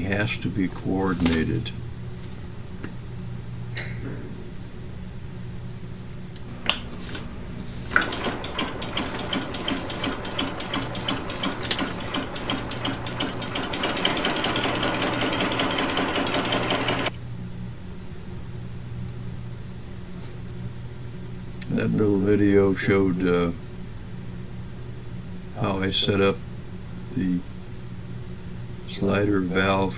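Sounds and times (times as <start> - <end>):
low steady hum: 0.0 - 29.9
compressed-air engine pulsing hiss: 6.5 - 17.1
sharp clicks: 7.9 - 14.2.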